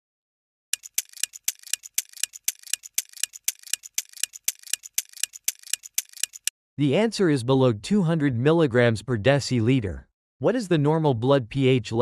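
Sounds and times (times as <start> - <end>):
clock ticking: 0.7 - 6.5.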